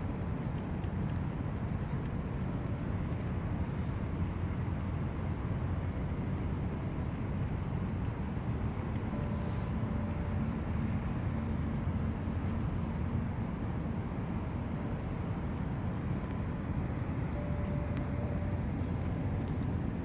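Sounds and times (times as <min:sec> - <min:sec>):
faint steady hums: 0:00.0 - 0:20.0
low outdoor rumble: 0:00.0 - 0:20.0.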